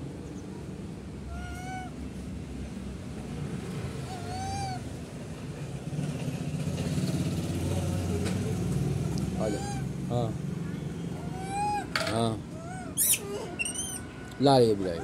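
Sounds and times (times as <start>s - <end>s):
monkey coo calls: 1.3s - 2.0s, 4.0s - 4.9s, 9.2s - 10.1s, 11.1s - 14.1s.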